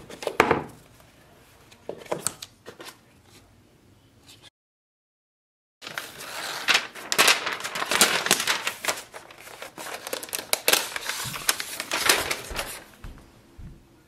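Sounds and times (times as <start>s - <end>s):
paper wrap peeling and crinkling: 5.8s - 13.0s.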